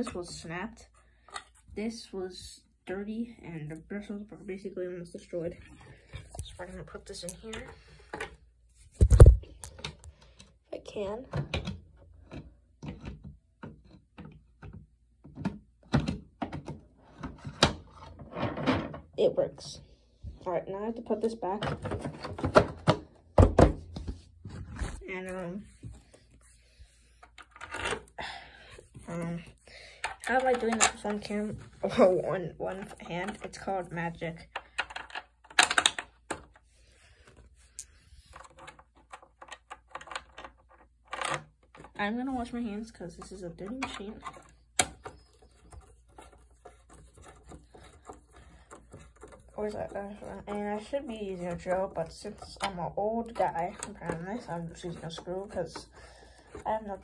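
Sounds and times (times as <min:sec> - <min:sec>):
vacuum parts knocking and clicking: 0:11.2 - 0:19.2, 0:21.2 - 0:24.6, 0:29.9 - 0:36.6, 0:38.2 - 0:57.0.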